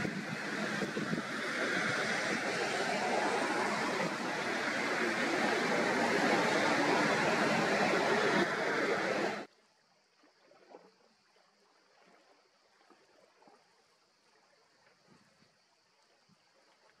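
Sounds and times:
loud rushing noise: 0:00.0 - 0:09.5
faint steady hiss: 0:00.0 - 0:17.0.

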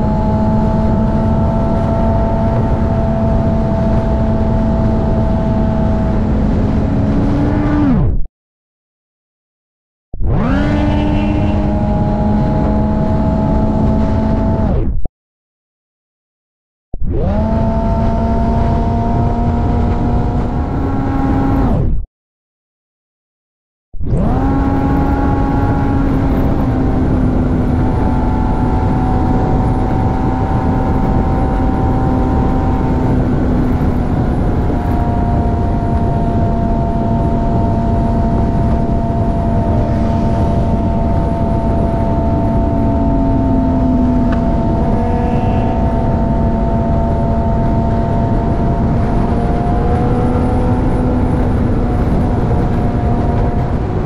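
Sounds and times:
motorcycle engine cruising: 0:00.0 - 0:08.0, 0:10.3 - 0:14.6, 0:17.2 - 0:21.7, 0:24.1 - 0:54.0
wind rushing past: 0:24.3 - 0:54.0.

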